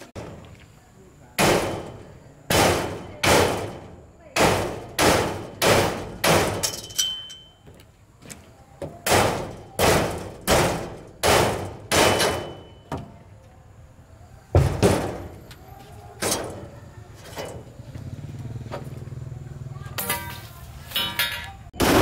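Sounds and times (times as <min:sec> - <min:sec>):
metal bangs with ring: 0:09.1 - 0:12.9.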